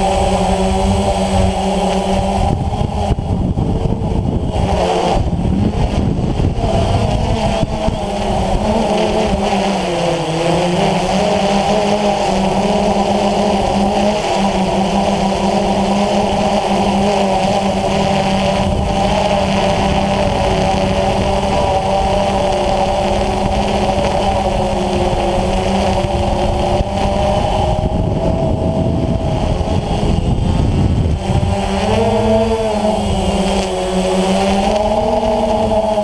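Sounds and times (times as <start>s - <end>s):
low rumble: 0.0s - 8.7s, 17.6s - 33.7s
drone motors whining: 0.0s - 36.0s.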